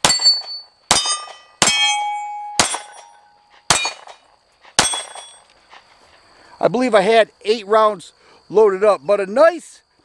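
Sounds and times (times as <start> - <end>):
pistol shots: 0.0 - 4.2, 4.8 - 5.4
steel plate target ringing: 0.0 - 4.2, 4.8 - 5.4.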